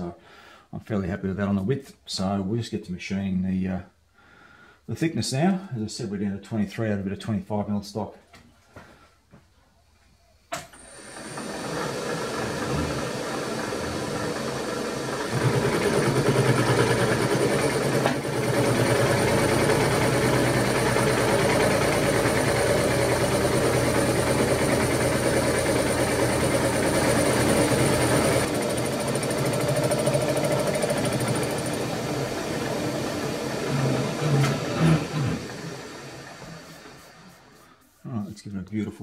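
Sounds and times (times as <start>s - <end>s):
milling machine spinning up: 10.8s - 37.6s
milling cutter machining metal: 11.0s - 37.2s.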